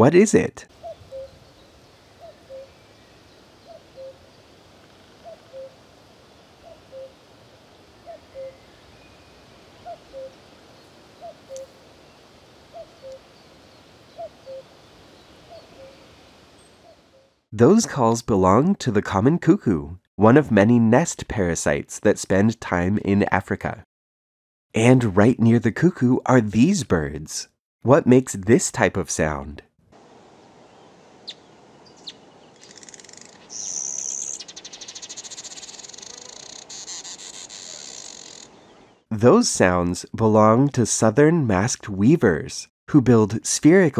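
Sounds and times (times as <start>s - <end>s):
cuckoo calling: 0.8s - 5.8s, 6.6s - 7.2s, 8.0s - 11.8s, 12.7s - 17.3s, 31.2s - 38.6s.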